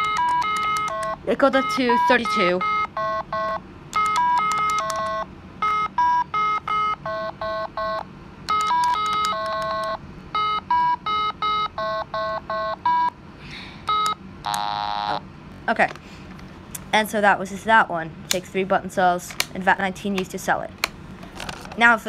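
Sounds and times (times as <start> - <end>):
electronic game beeping tones: 0.0 - 13.1.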